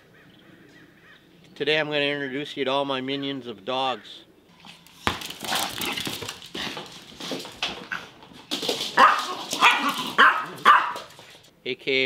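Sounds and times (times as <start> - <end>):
dog claws clicking on wood floor: 5.0 - 11.5
small dogs barking: 9.0 - 11.3.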